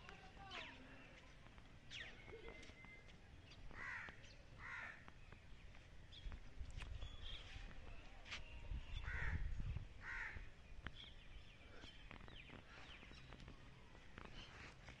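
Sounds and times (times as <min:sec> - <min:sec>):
crows cawing: 0:03.7 - 0:05.0, 0:09.0 - 0:10.5.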